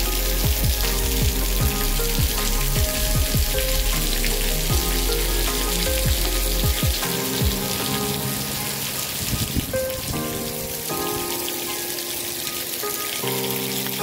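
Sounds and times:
low rumble: 0.0s - 6.9s
heavy rain hissing: 0.0s - 14.0s
soft background music: 0.0s - 14.0s
wind: 0.0s - 14.0s.

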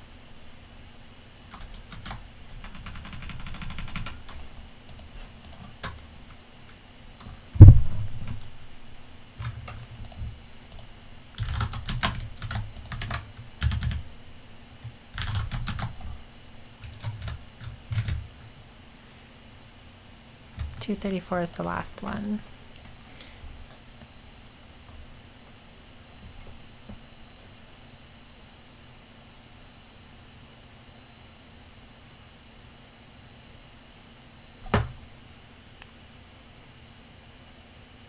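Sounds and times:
computer keyboard typing: 1.5s - 6.0s, 9.4s - 14.0s, 15.1s - 16.2s, 16.8s - 18.5s
heavy thump: 7.6s - 8.3s.

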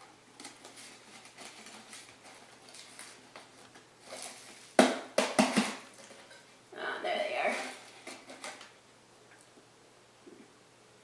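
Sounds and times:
knocks on cardboard can: 4.8s - 5.8s.

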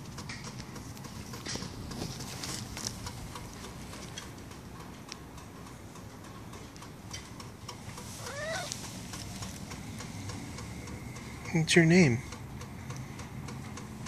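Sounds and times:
faint scuffing and clicking: 0.5s - 4.3s
cat meowing: 8.2s - 8.8s.

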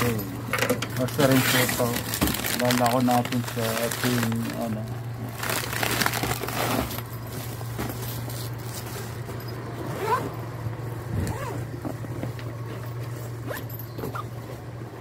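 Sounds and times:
zipper pulled on bag: 9.8s - 10.3s, 11.1s - 11.7s.

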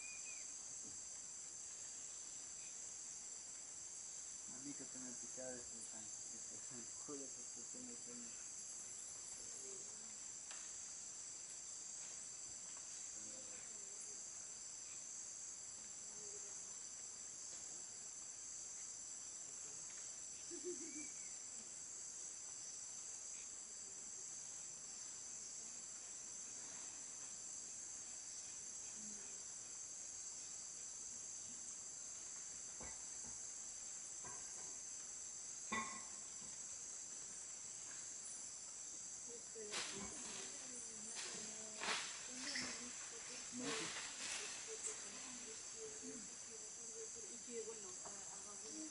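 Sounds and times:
shrill insect chorus: 0.0s - 48.9s.

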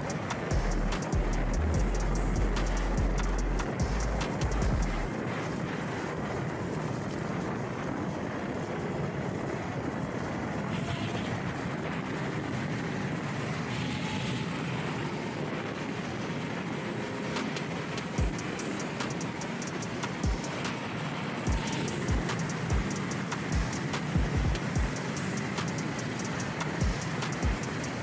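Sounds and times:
ticks: 0.0s - 5.1s, 17.4s - 20.8s, 21.5s - 28.0s
wind rush: 0.0s - 28.0s.

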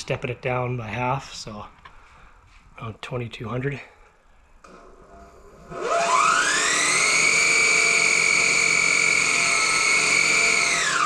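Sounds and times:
lathe motor whining: 4.7s - 11.0s.

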